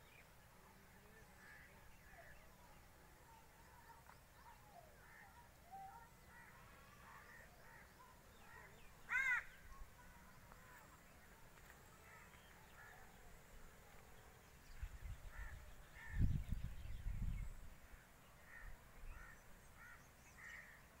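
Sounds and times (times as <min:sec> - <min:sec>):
crow cawing: 0:09.1 - 0:09.6.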